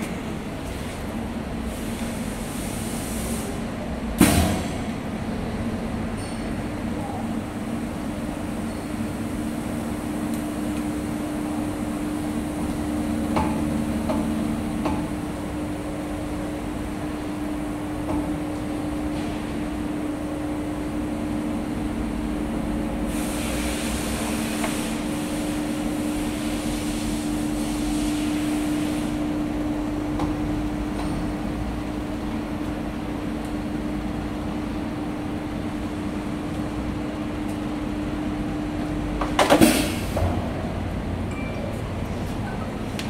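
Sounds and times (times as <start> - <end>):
hiss: 1.7 - 3.6, 23.1 - 25.8, 26.4 - 29.2.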